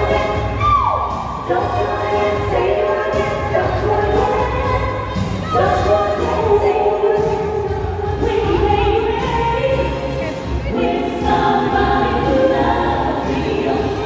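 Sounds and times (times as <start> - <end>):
woman singing: 1.4 - 14.0.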